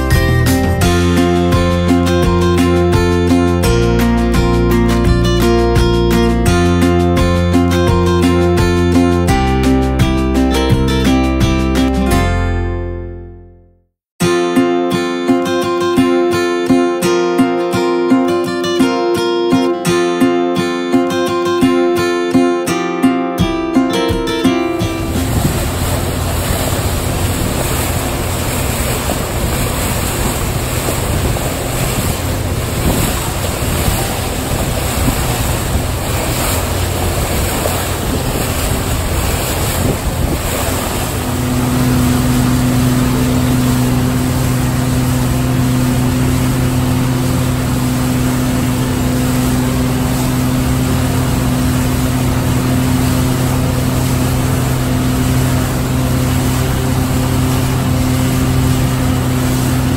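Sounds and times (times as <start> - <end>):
outboard motor droning: 0.0 - 12.3, 23.9 - 59.9
water rushing along hull: 0.0 - 12.6, 23.6 - 59.9
wind noise: 24.7 - 59.9.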